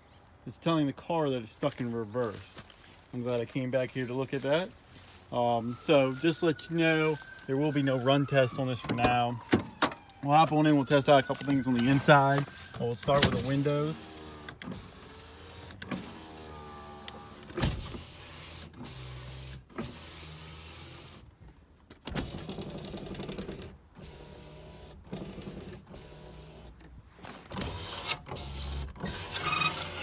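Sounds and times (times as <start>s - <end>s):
power window motor running: 9.8s - 21.2s, 22.2s - 26.8s.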